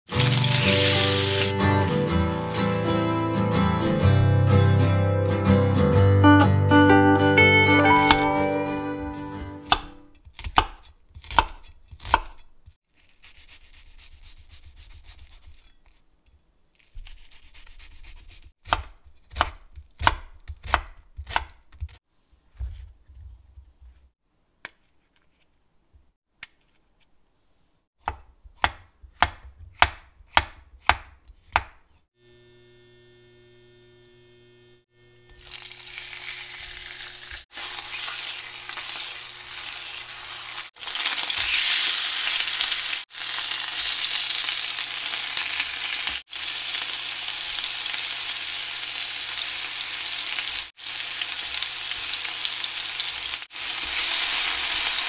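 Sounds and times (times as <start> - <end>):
chicken sizzling in pan: 0.1 - 1.7, 35.3 - 55.0
knife chopping on wooden board: 9.6 - 12.5, 18.6 - 22.0, 28.0 - 31.9
electric hum: 32.2 - 37.4.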